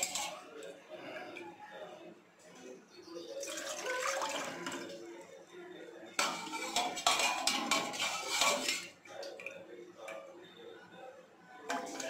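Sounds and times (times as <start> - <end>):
metal utensils clanking on pot: 0.0 - 0.7, 6.1 - 9.5, 11.7 - 12.0.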